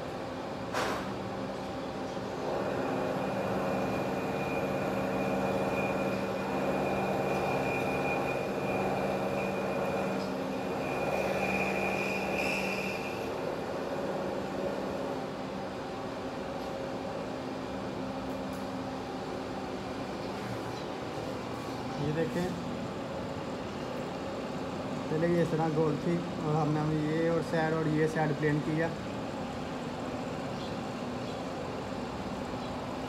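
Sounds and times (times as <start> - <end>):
milling machine motor hum: 2.4 - 15.8
end mill cutting metal whine: 2.5 - 13.5.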